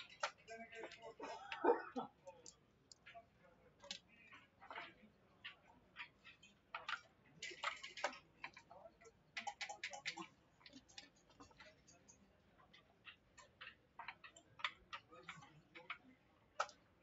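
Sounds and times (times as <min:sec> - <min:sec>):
checkers and dice clicking on board: 0:00.0 - 0:01.6, 0:02.3 - 0:17.0.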